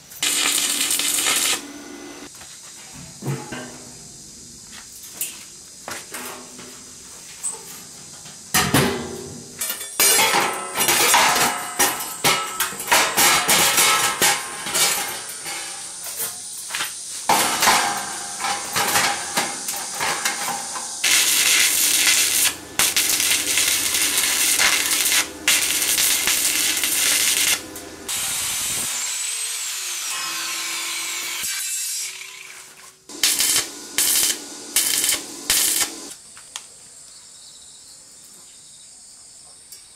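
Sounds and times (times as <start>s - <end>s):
arc welding crackling: 0.0s - 2.3s, 16.7s - 29.2s, 33.1s - 36.2s
harsh machine noise: 0.1s - 2.3s, 21.0s - 29.2s, 33.1s - 36.1s
steel clanking and knocking: 17.3s - 28.1s.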